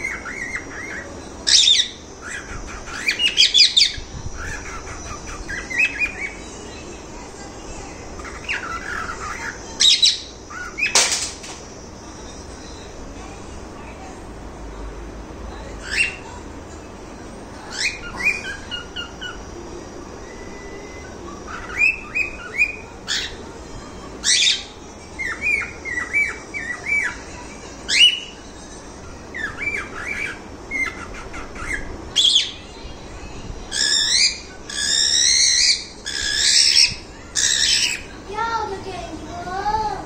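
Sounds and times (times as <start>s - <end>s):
cockatiels chirping: 0.0s - 6.5s, 8.1s - 11.2s, 15.8s - 16.4s, 17.7s - 19.4s, 20.4s - 28.4s, 29.3s - 32.7s, 33.7s - 38.2s
harsh bird calls: 0.0s - 13.2s, 15.7s - 40.0s.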